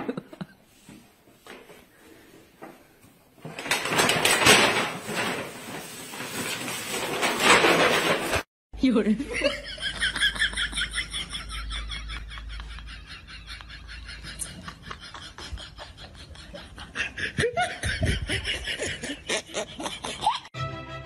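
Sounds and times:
person laughing high-pitched: 10.8 - 20.5.

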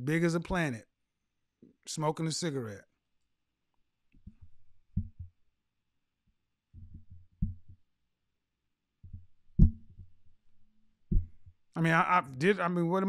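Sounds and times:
low dull thumps: 4.2 - 5.4, 6.8 - 7.8, 9.0 - 10.3, 11.0 - 11.6.

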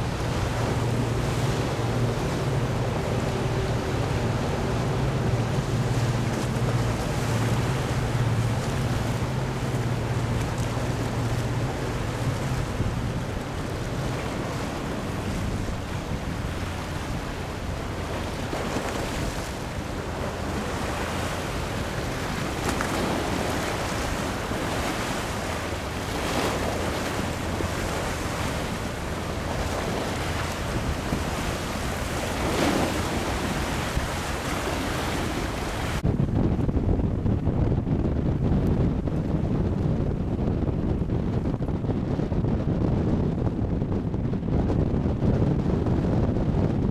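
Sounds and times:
waves washing: 0.0 - 36.4
boat engine humming: 0.0 - 46.8
wind buffeting microphone: 0.0 - 46.9.

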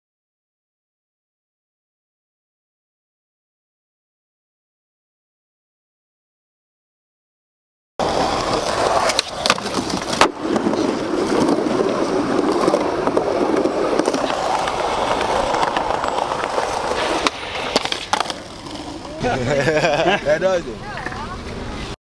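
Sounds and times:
skateboard clacks: 8.0 - 19.3, 20.8 - 21.9
skateboard wheels rolling on pavement: 8.0 - 22.0.

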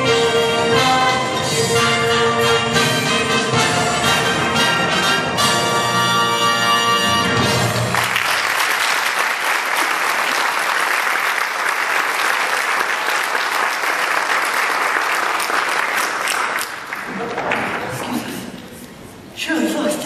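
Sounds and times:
audience applauding: 7.6 - 18.2.

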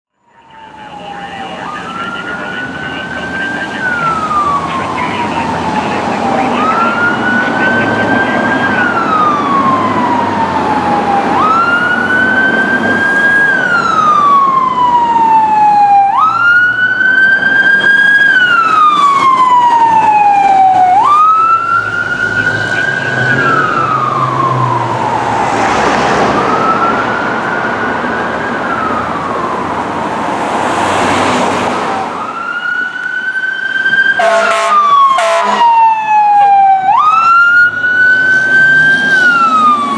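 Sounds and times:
fire engine siren wailing: 0.1 - 39.9
diesel engine rumble: 0.4 - 33.2
short siren tone bursts: 34.2 - 37.3.

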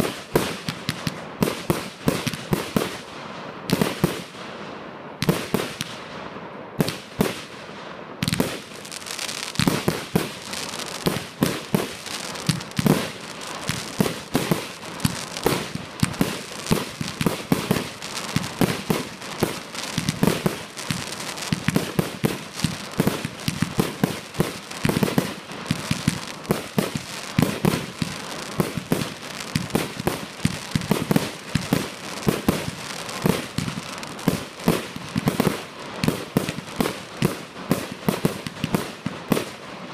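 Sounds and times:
fireworks bangs and pops: 0.0 - 4.5, 5.2 - 6.2, 6.8 - 39.9
fireworks crackling: 0.0 - 39.9.

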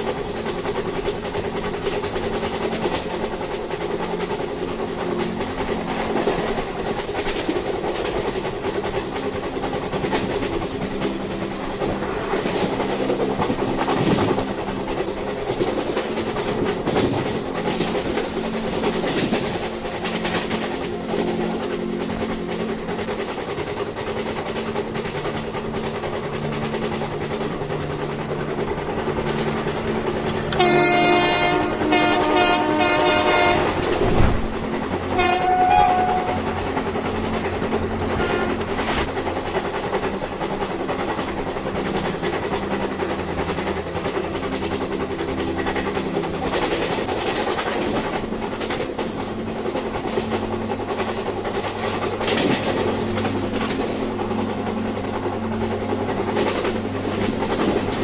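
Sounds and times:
train rumbling on rails: 0.0 - 58.0
train horn blasts: 30.4 - 34.2, 35.1 - 36.6, 38.0 - 39.0.

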